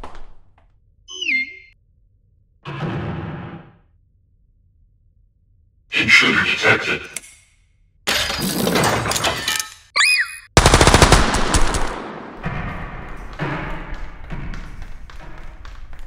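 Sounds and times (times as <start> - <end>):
machine-gun fire: 10.6 - 12.4
echoing gunshots: 10.6 - 12.8.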